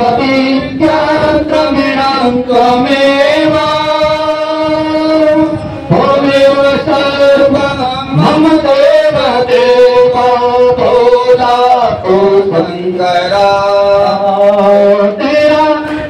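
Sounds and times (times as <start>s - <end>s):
person singing devotional song: 0.0s - 16.0s.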